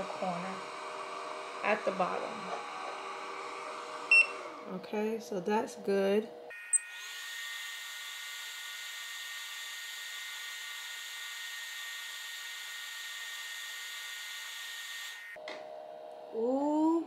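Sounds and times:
laser engraver whine: 0.0 - 4.6, 6.5 - 15.4.

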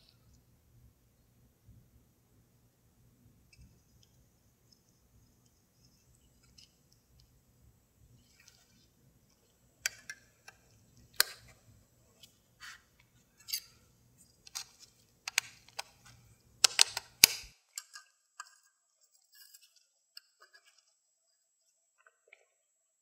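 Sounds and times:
metal snips clicking: 16.6 - 18.6.

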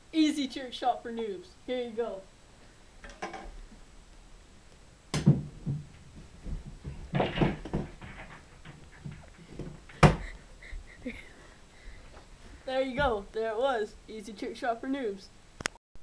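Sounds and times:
pool balls knocking and rattling: 3.0 - 3.6, 5.1 - 10.3
pool balls clacking: 5.1 - 10.3.

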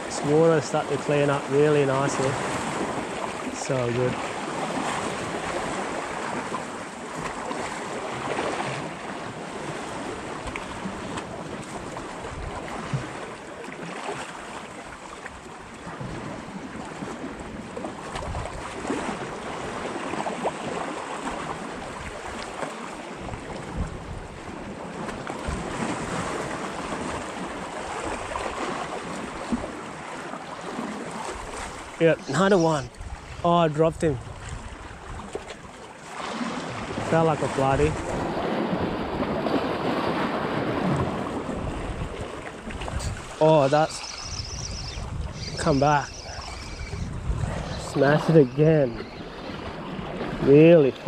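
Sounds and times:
wind buffeting microphone: 15.8 - 22.4, 23.2 - 29.8, 30.8 - 35.7, 36.4 - 51.0
water washing against rocks: 35.3 - 51.0.

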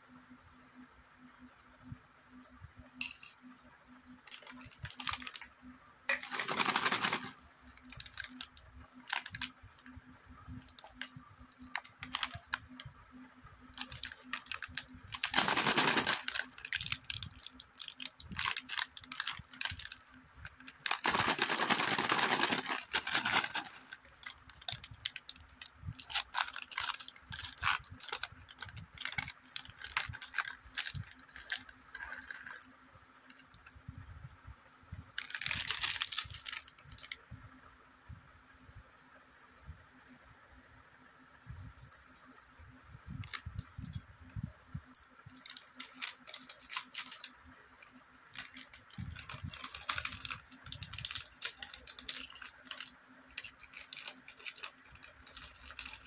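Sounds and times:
plastic wrappers crinkling: 13.8 - 31.7, 45.4 - 47.3, 48.4 - 56.0.

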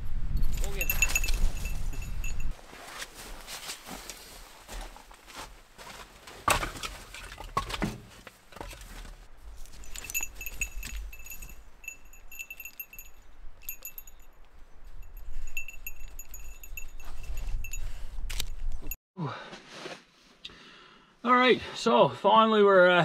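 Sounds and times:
dog collar bell jingling: 0.4 - 2.6, 9.6 - 19.0
crunches and knocks: 5.8 - 14.2.

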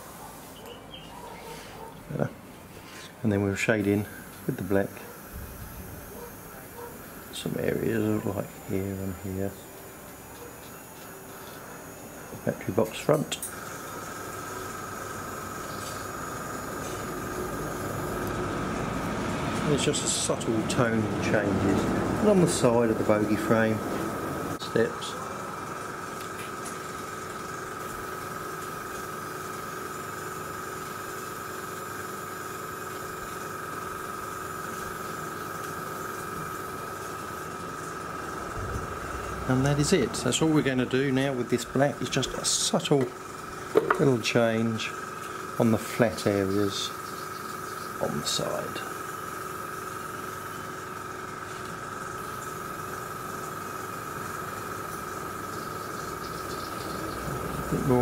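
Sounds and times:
compressor whining: 0.0 - 58.0
airbrush hissing: 3.8 - 24.6.

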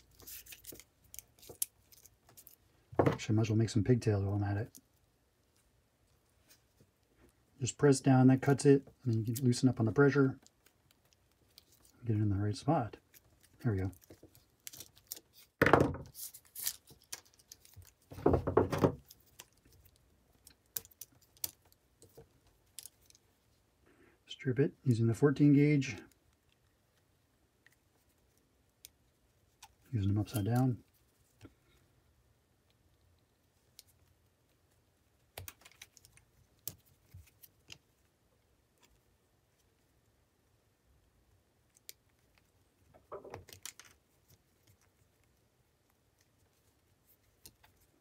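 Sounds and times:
cable rustling: 0.0 - 7.6, 8.5 - 23.7, 32.6 - 40.0, 41.6 - 48.0.

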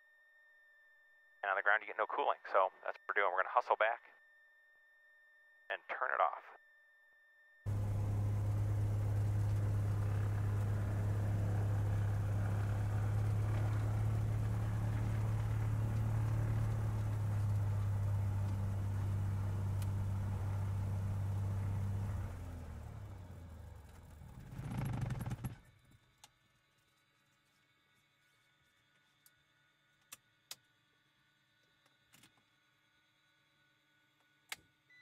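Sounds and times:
aircraft piston engine running: 7.7 - 23.2
engine sputter: 7.7 - 25.7.

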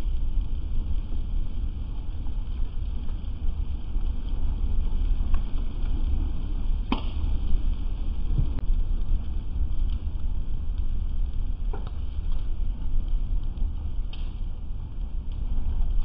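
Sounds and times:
fire popping and cracking: 0.0 - 16.0
low rumble: 0.0 - 16.0.

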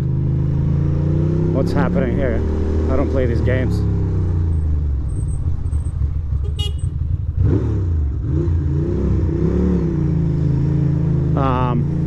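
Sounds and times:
motorcycle engine running: 0.0 - 8.4.

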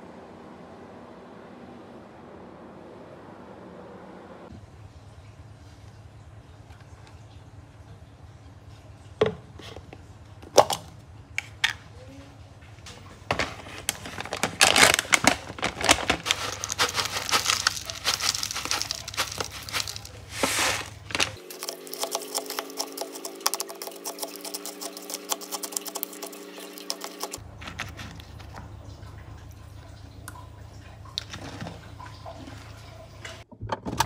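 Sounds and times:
granola pouring into tub: 13.3 - 24.0
plastic bag crinkling: 13.3 - 28.4.

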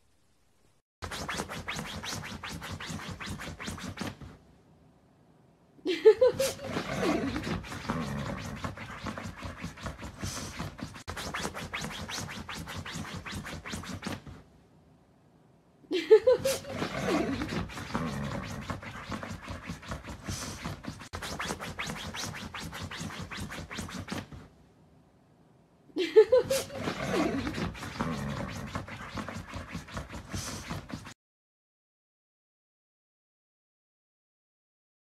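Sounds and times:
dog claws scratching fabric: 1.0 - 4.4, 6.5 - 14.5, 16.5 - 24.6, 26.6 - 31.2.

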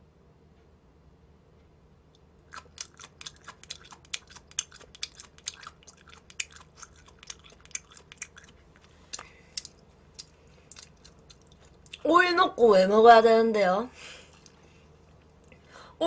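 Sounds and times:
wet chewing clicks: 2.2 - 12.1.

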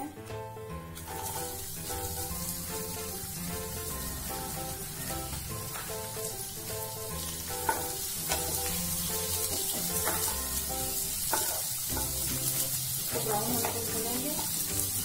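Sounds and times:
background music: 0.0 - 15.0
onions sizzling in hot oil: 0.9 - 15.0.

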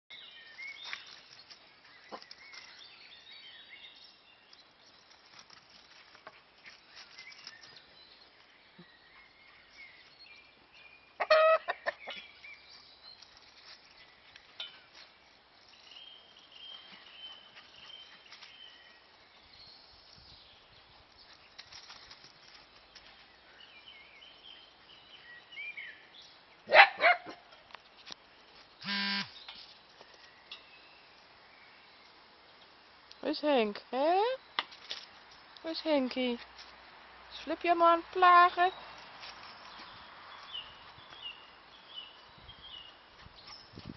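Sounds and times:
chickens clucking: 11.2 - 12.3.

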